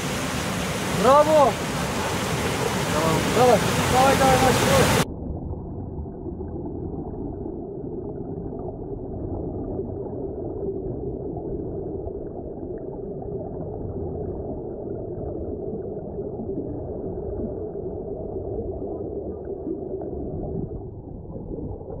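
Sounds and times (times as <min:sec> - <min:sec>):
underwater air bubbles gurgling: 0:00.0 - 0:22.0.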